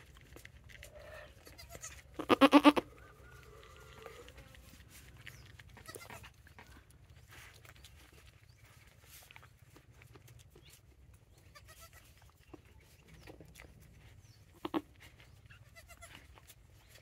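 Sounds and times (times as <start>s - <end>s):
wet licking and rustling: 0.0s - 17.0s
goat bleating: 0.9s - 4.5s, 5.8s - 6.4s, 11.4s - 12.2s, 14.6s - 16.5s.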